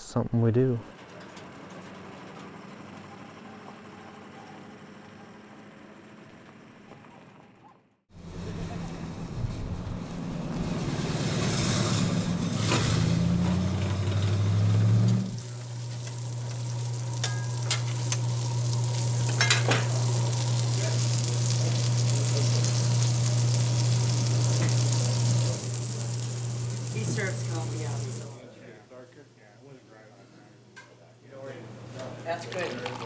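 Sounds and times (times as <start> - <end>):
sausage sizzling on a griddle: 15.2 - 28.4
steady low hum: 15.2 - 28.4.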